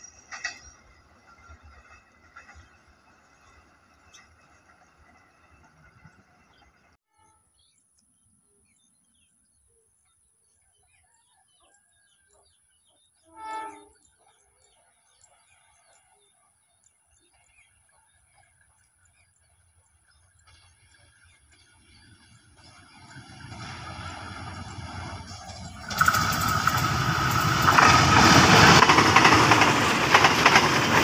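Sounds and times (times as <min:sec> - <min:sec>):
train horn: 0:13.2 - 0:14.0.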